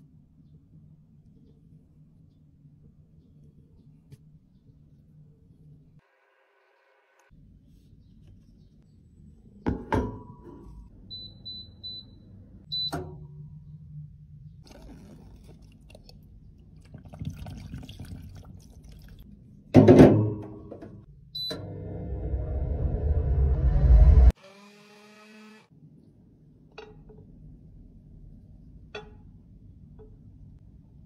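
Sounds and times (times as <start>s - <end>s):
faint running water: 14.6s - 19.2s.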